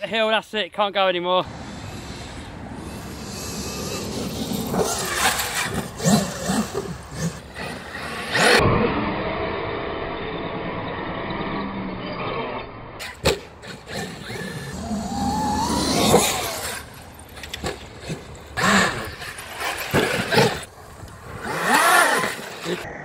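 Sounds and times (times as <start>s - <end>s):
electric motor whine: 13.6s - 17.1s.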